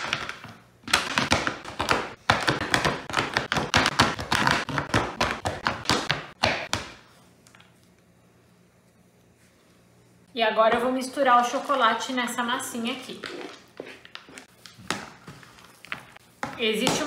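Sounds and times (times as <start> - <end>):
knife chopping on plastic board: 0.9 - 7.0.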